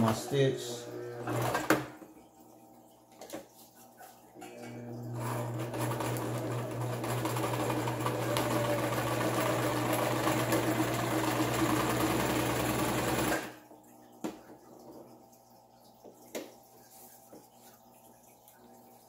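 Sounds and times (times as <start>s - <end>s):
sewing machine stitching: 1.1s - 1.9s, 5.1s - 13.6s.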